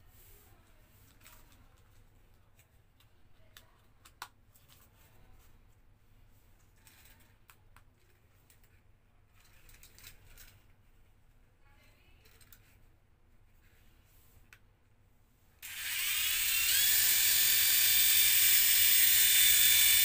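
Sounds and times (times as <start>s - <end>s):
hands handling plastic toys: 0.3s - 11.4s, 12.1s - 14.8s.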